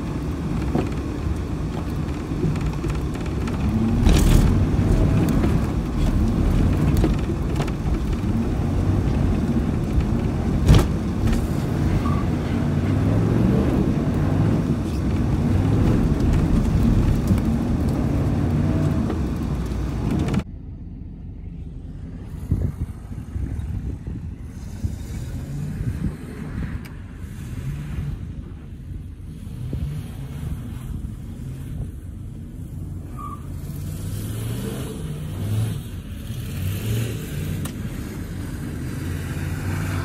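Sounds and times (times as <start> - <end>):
diesel truck engine revving: 3.4 - 20.4.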